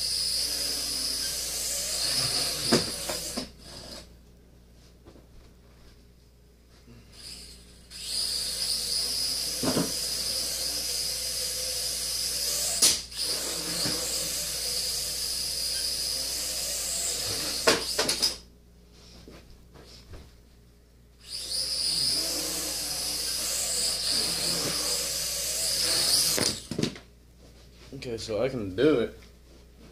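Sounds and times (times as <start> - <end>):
quadcopter motors whining: 0.0 - 4.1, 7.1 - 18.4, 21.2 - 26.8.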